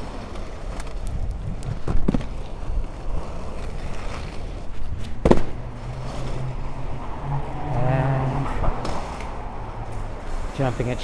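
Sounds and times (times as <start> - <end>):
skate wheels rumbling on asphalt: 0.0 - 11.0
wind on microphone: 0.9 - 3.1.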